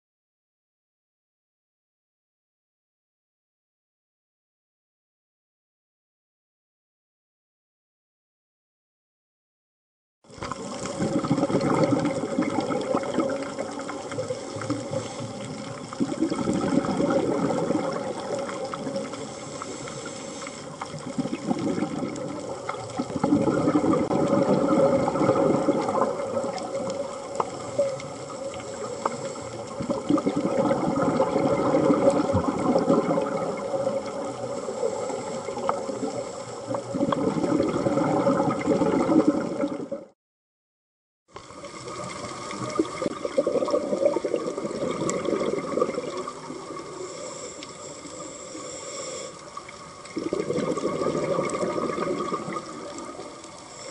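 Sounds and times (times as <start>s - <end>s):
regulator bubbles underwater: 10.3s - 40.2s, 41.3s - 53.9s.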